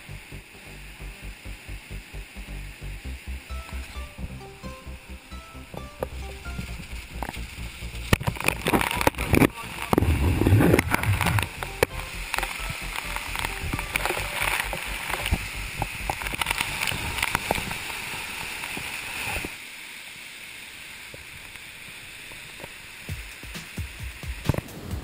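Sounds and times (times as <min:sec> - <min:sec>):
waterfall rushing hiss: 0:00.0 - 0:25.0
wind buffeting: 0:10.0 - 0:11.6.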